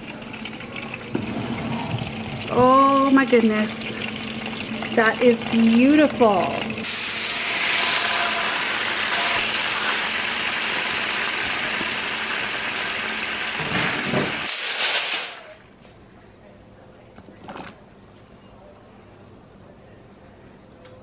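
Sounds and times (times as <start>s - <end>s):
fat sizzling in a roasting pan: 0.1s - 15.5s.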